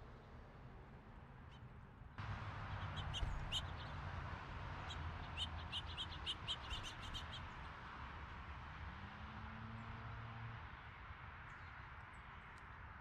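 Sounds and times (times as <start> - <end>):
small birds chirping: 2.7 - 4.0, 4.8 - 7.6.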